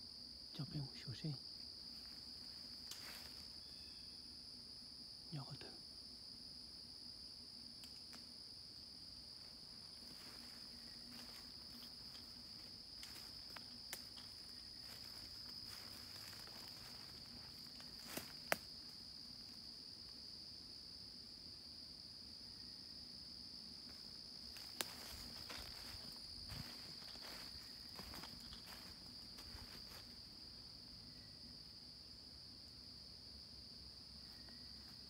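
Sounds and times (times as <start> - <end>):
insect chorus trilling: 0.0 - 35.0
footsteps in leaf litter: 24.6 - 30.1.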